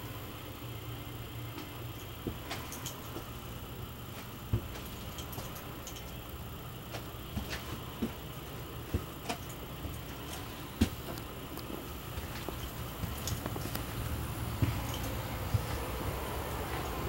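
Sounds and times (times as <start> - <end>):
steady low hum: 0.0 - 17.0
footsteps: 8.9 - 17.0.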